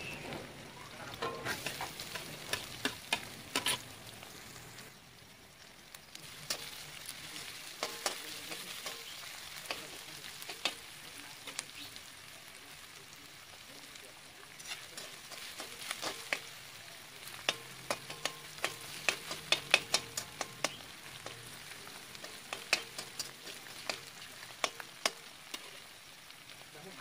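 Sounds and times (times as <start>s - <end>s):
metal spatula scraping wok: 0.0s - 4.0s, 6.3s - 11.6s, 14.5s - 16.6s, 17.2s - 25.9s
food sizzling in a wok: 0.0s - 27.0s.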